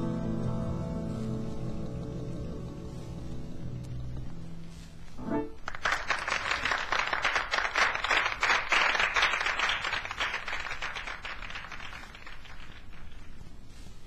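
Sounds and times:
audience applauding: 5.6s - 13.4s.

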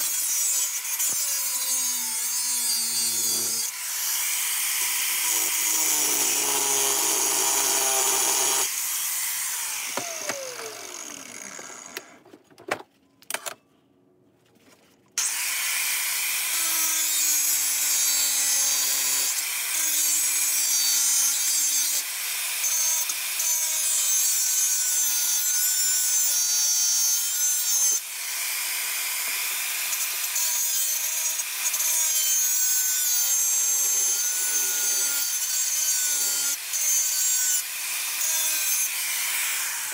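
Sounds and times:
angle grinder grinding steel: 0.0s - 12.2s, 29.8s - 39.9s
grinder spinning down whine: 4.9s - 8.7s, 9.5s - 12.2s.

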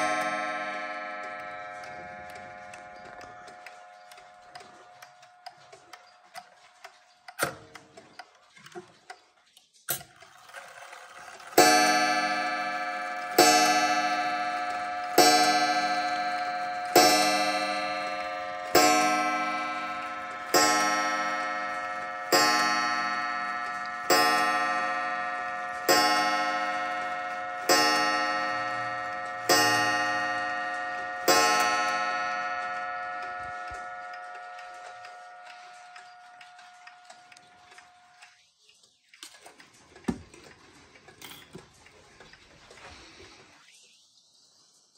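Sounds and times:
clock striking on coil gong: 0.0s - 6.1s, 11.4s - 38.1s
clock mechanism clicks: 0.0s - 43.2s.

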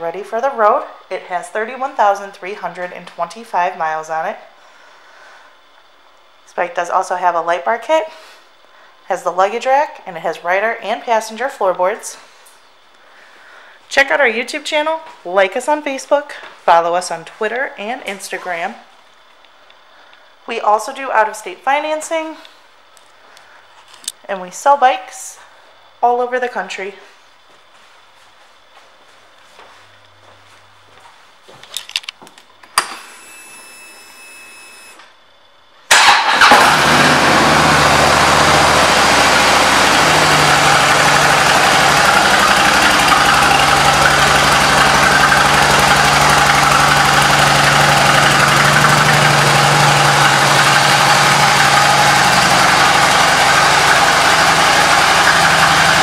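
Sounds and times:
starter whine: 35.9s - 56.0s
motorcycle engine idling: 37.5s - 56.0s.

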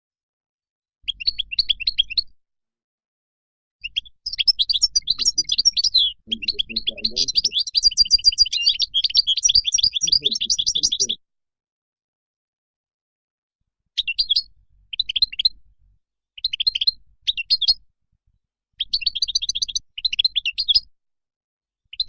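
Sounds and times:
goldfinch twittering song: 1.0s - 2.3s, 3.8s - 11.2s, 14.0s - 15.6s, 16.4s - 17.8s, 18.8s - 20.9s.

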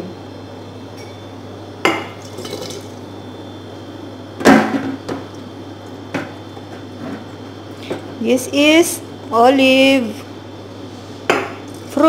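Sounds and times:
olives splashing into glass jar: 2.2s - 3.0s.

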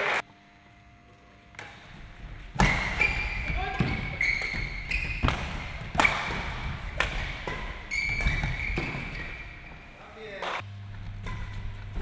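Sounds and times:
rackets striking shuttlecock: 1.5s - 9.4s
shoes squeaking on floor: 2.6s - 6.7s, 7.5s - 10.0s.

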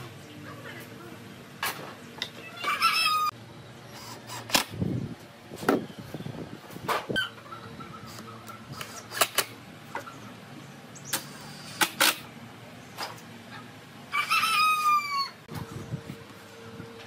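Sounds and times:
rooster crowing: 14.1s - 15.5s.

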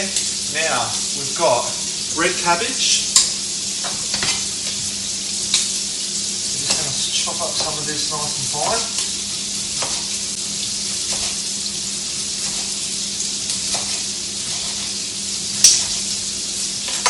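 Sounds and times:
food sizzling in pans: 0.0s - 17.0s
knife chopping on cutting board: 9.8s - 10.2s, 11.0s - 11.5s, 12.4s - 12.8s, 13.5s - 15.0s, 15.6s - 16.2s.

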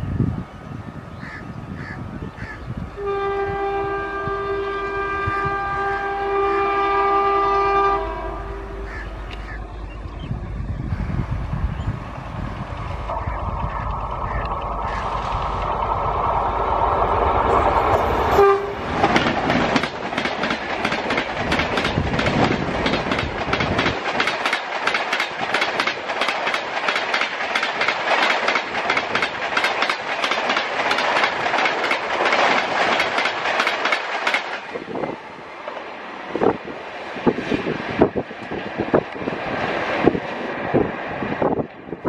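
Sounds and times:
train rumble: 0.0s - 42.0s
locomotive horn: 3.0s - 9.8s, 18.1s - 19.0s
wheels clacking over rail joints: 12.8s - 35.0s.

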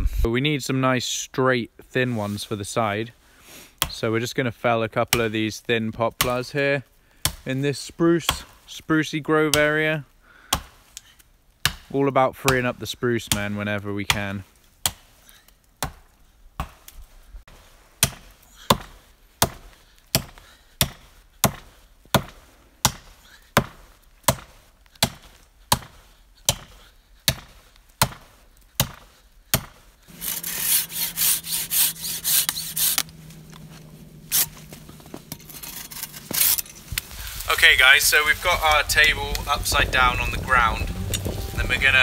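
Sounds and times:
axe chopping tree trunk: 7.2s - 7.4s, 10.5s - 10.8s, 11.6s - 11.9s, 14.1s - 15.1s, 15.8s - 16.9s, 18.0s - 29.8s
falling tree crackling through branches: 32.9s - 42.0s.

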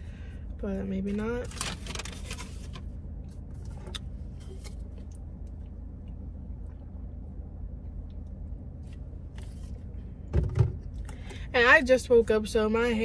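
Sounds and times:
low hum inside car cabin: 0.0s - 13.0s.

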